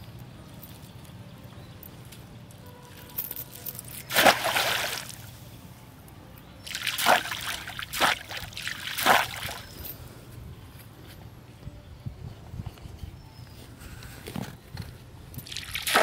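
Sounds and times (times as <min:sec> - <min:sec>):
line splashing into pond: 0:04.1 - 0:05.3, 0:06.7 - 0:09.6, 0:15.4 - 0:16.0.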